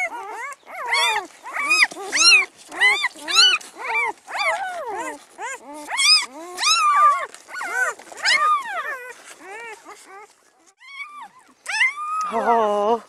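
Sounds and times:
puppies crying: 0.0 - 12.8.

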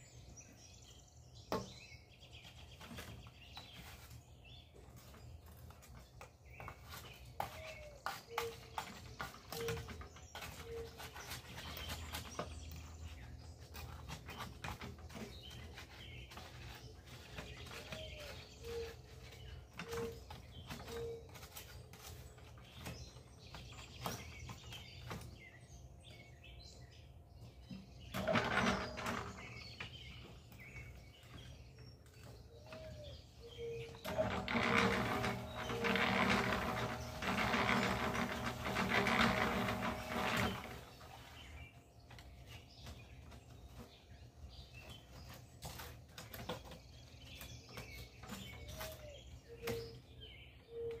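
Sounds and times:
bird calling: 17.4 - 21.6, 32.4 - 41.6
rushes of scraping noise: 34.1 - 41.4.

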